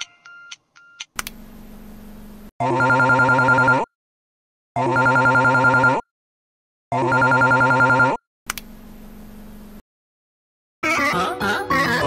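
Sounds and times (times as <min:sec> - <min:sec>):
phone ringtone trilling: 0:02.6 - 0:03.9, 0:04.8 - 0:06.0, 0:07.0 - 0:08.2.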